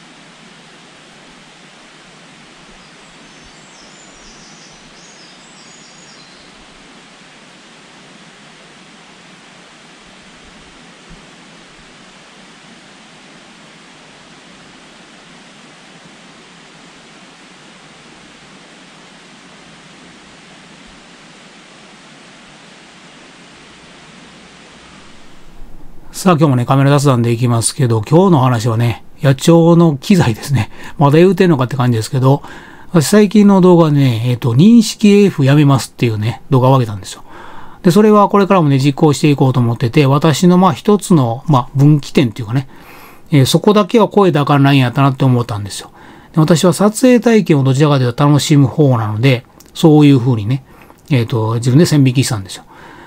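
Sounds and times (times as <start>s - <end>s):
steady background hiss: 0.0s - 53.0s
faint high chirps: 2.8s - 6.6s
small tick: 49.5s - 49.8s.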